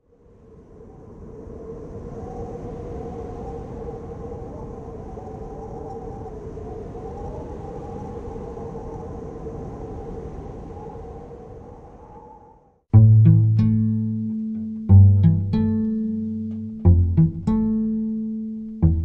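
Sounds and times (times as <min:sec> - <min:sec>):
wavering higher tone: 0:13.0 - 0:19.0.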